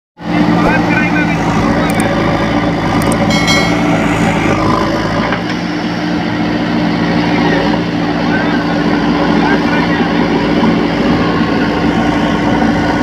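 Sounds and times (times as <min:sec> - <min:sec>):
diesel engines running: 0:00.2 - 0:13.0.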